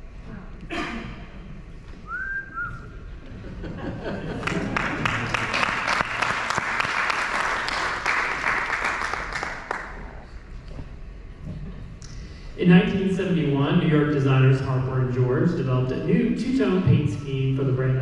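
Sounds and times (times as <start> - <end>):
person whistling: 2.0 - 3.0
audience applause: 4.1 - 10.2.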